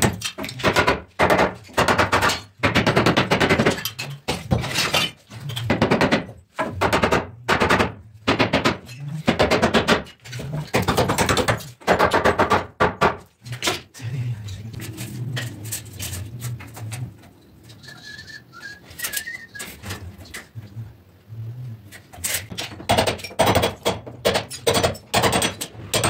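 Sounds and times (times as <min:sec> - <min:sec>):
hammer driving nails into wood: 0:00.0 - 0:13.8, 0:22.2 - 0:26.0.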